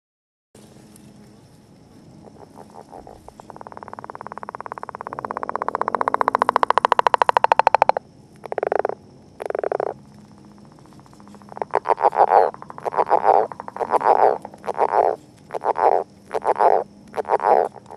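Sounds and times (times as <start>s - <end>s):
frog croaks: 2.1s - 17.9s
frog rattling call: 2.2s - 17.9s.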